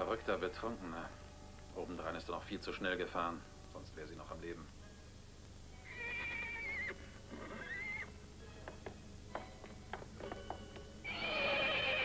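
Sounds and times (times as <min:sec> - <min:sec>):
horse whinnying: 0:05.8 - 0:08.2, 0:11.0 - 0:12.0.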